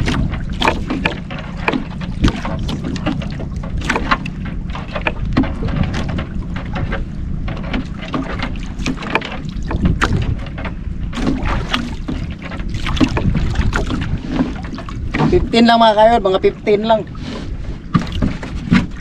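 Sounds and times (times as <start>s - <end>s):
water lapping against boat hull: 0.0s - 19.0s
wind rumble on microphone: 0.0s - 19.0s
sharp slaps and knocks: 7.7s - 12.2s.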